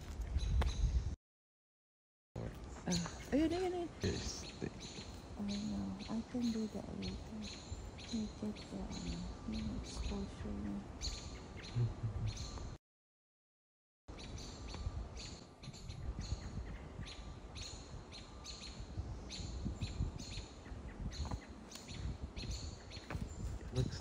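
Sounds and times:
small birds chirping: 2.4s - 12.8s, 14.2s - 24.0s
low rumble: 11.7s - 12.7s.

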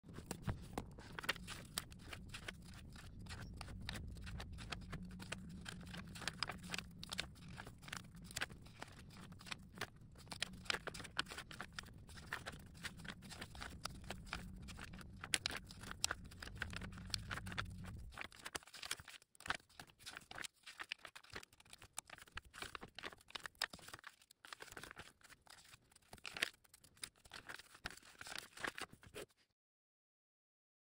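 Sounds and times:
low steady hum: 0.1s - 18.3s
paper pages flicking and rustling: 0.1s - 29.4s.

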